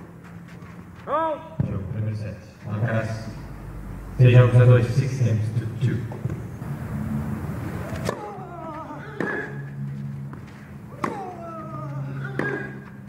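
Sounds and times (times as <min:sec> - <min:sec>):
tennis rackets striking ball: 0:07.9 - 0:08.5, 0:09.2 - 0:09.6, 0:10.3 - 0:13.0.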